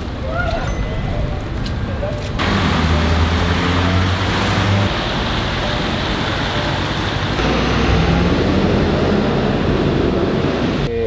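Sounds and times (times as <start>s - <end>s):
passing cars with engine hum: 0.0s - 10.9s.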